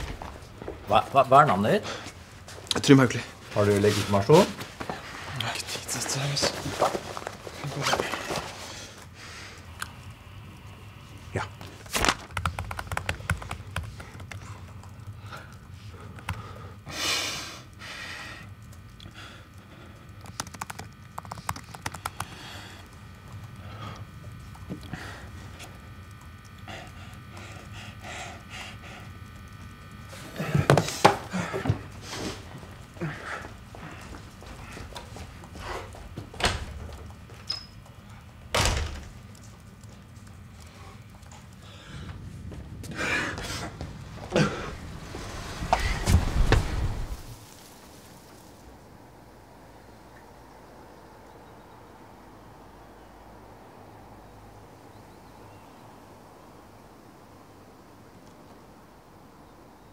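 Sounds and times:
laptop keyboard typing: 11.8 - 16.8, 18.6 - 31.6
door squeak: 37.4 - 37.8
door shutting with a bang: 38.6 - 39.1.

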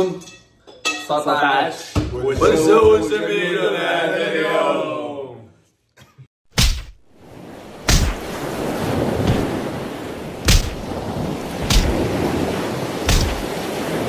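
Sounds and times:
sharp cracks: 6.5 - 7.0, 7.8 - 8.3, 10.4 - 10.9, 11.6 - 12.1, 13.1 - 13.6.

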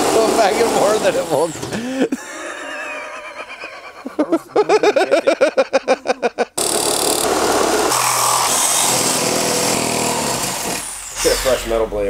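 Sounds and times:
reciprocating saw cutting metal: 6.6 - 11.9.

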